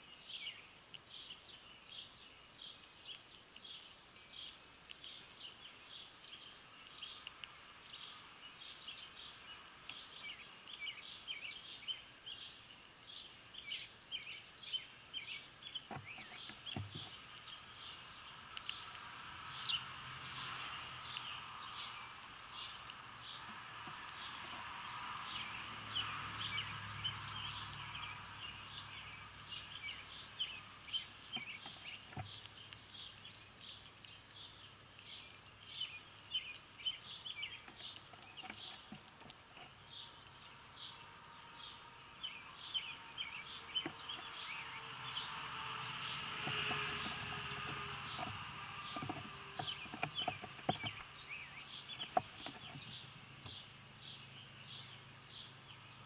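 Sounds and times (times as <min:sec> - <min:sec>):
small birds chirping: 0:00.0 - 0:56.0
sharp clicks: 0:18.5 - 0:19.0.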